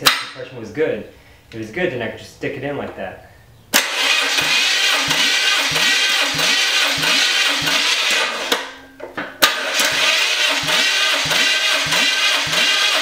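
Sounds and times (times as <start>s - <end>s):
starter motor cranking engine: 3.8s - 8.8s, 9.4s - 13.0s.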